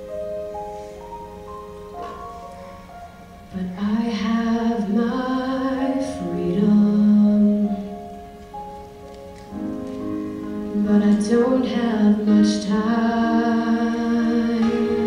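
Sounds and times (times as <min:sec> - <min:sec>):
instrumental backing chords: 0:00.0 - 0:15.0
woman singing ballad: 0:03.5 - 0:08.0, 0:10.6 - 0:15.0.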